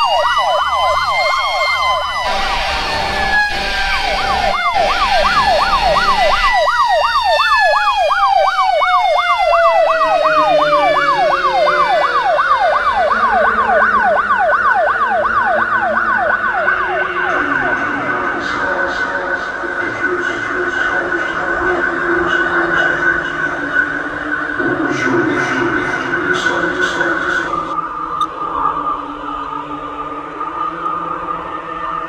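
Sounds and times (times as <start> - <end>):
siren yelping: 0.0 - 19.8
tone gliding downward: 0.0 - 21.8
steady high tone: 0.0 - 23.4.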